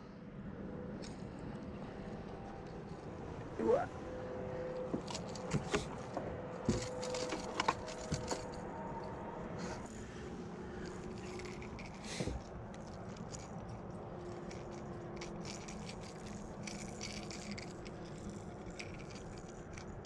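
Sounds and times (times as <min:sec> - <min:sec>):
plastic lure clicking and rattling: 0:05.0 - 0:08.6, 0:10.8 - 0:20.0.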